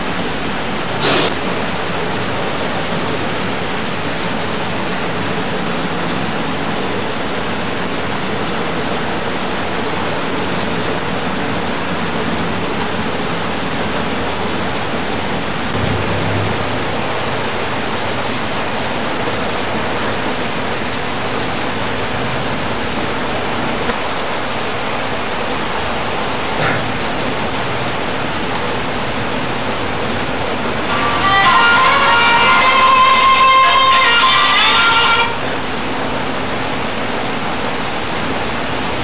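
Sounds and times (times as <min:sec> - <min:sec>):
loud steady hiss: 0:00.7 - 0:02.0
low rumble: 0:15.8 - 0:18.8.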